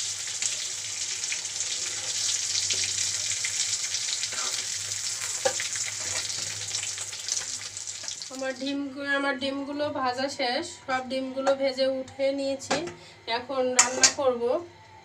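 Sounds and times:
eggs sizzling in hot oil: 0.0 - 8.7
spatula scraping a pan: 4.3 - 6.6.

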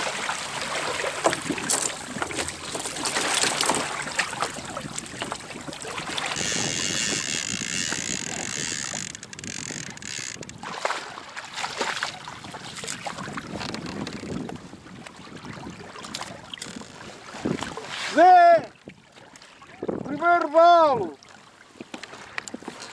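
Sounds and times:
water rushing along a kayak hull: 0.0 - 22.9
wind on microphone: 3.8 - 19.0, 19.7 - 20.3.

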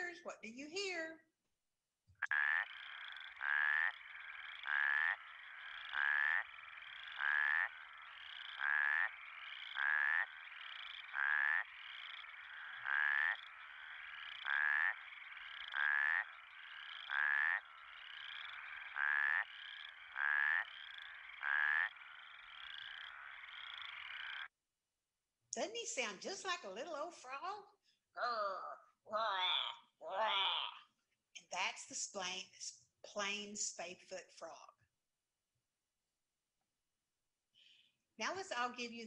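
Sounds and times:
chorus of frogs: 2.2 - 24.5
toad snore-like calls: 2.2 - 24.5, 28.2 - 30.9.

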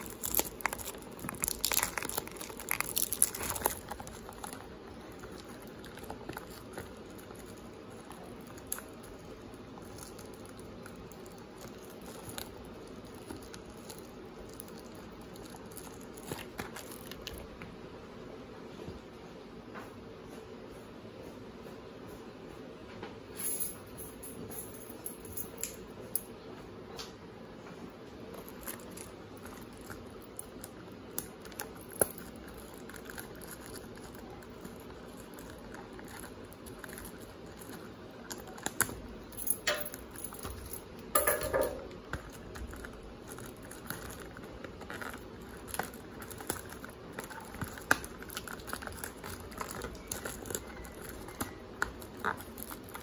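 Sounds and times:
packaging rustling: 0.0 - 17.4, 28.2 - 53.0.

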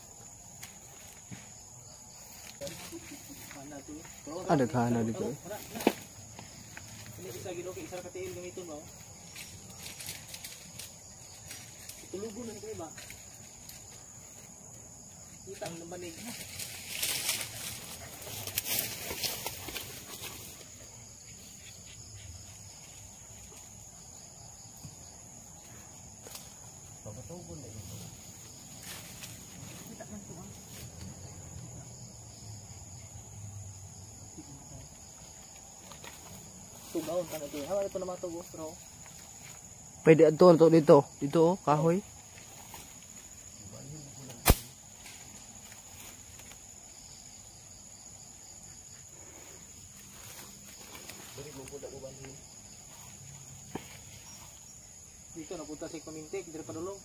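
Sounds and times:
insects chirring: 0.0 - 57.0
slingshot snap: 44.4 - 44.8.

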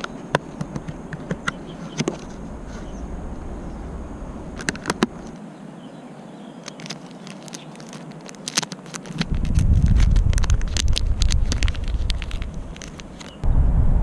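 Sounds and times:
wind rumble on microphone: 0.7 - 5.4, 9.2 - 14.0
light clicks and crackles: 6.6 - 13.4.

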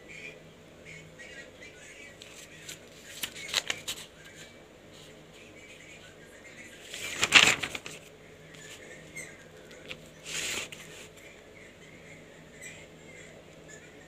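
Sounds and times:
notebook page turning: 2.2 - 4.1, 6.9 - 8.1
faint paper-handling ticks: 2.2 - 5.1, 6.9 - 11.3.

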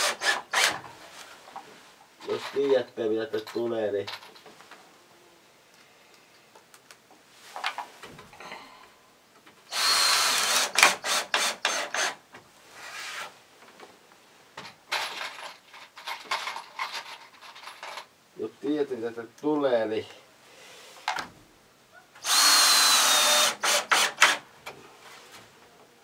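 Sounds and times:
power drill driving screws into wood: 0.0 - 0.9, 9.7 - 12.2, 22.2 - 24.4.

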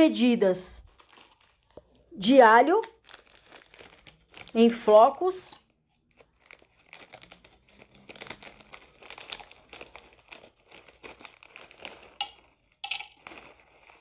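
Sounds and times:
plastic bag crinkling: 0.8 - 14.0.

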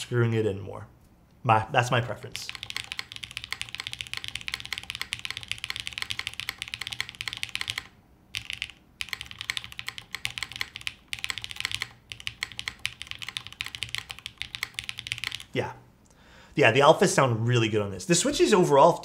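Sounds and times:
fast mechanical keyboard typing: 2.4 - 15.6.

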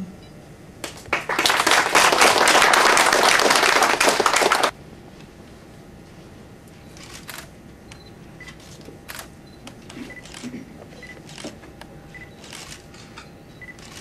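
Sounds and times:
audience applauding: 0.8 - 4.7.

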